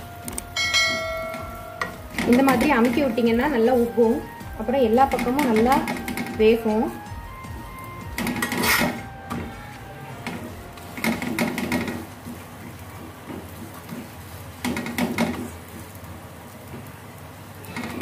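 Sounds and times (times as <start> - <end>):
steady low hiss: 0.0 - 5.6
metal spatula rattling on griddle: 5.1 - 6.6, 11.0 - 12.1.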